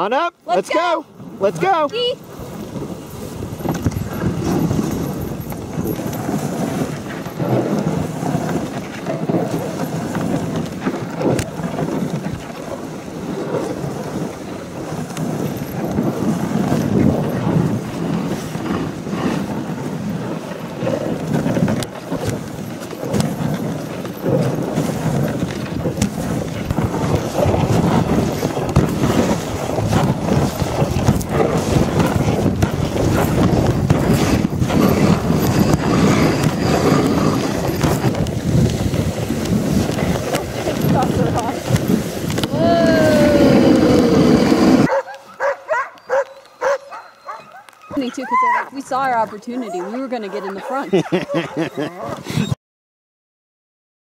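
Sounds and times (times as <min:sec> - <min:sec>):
sled runners scraping over snow: 0:00.0 - 0:52.6
wind buffeting microphone: 0:00.8 - 0:52.6.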